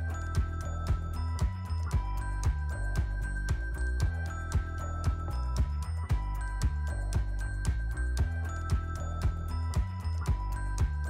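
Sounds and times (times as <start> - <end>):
music with heavy bass beat: 0.0 - 11.0.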